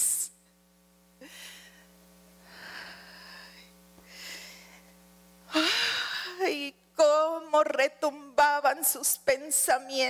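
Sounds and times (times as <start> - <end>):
faint steady hum: 0.0 - 10.0
woman gasping breaths: 1.2 - 6.4.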